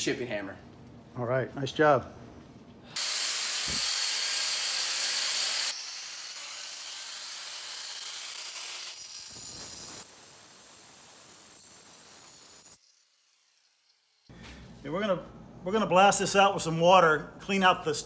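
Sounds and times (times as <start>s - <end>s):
angle grinder cutting concrete: 3.0s - 14.3s.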